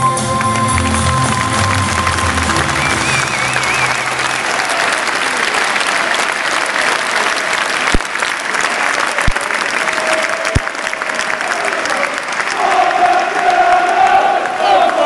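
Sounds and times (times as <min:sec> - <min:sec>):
low notes of song: 0:00.0 - 0:06.4
stadium crowd applauding: 0:00.0 - 0:15.0.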